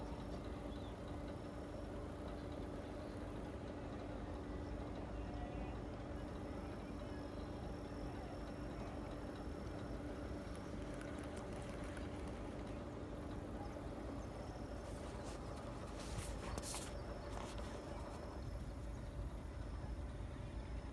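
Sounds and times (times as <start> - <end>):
faint hum: 0.0 - 20.9
scratchy handling noises: 14.8 - 18.4.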